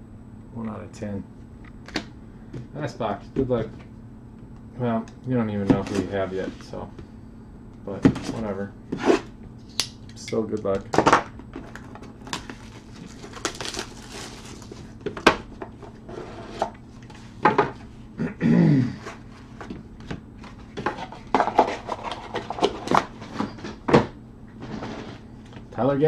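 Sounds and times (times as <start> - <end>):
cardboard box rustling: 11.6 - 15.0.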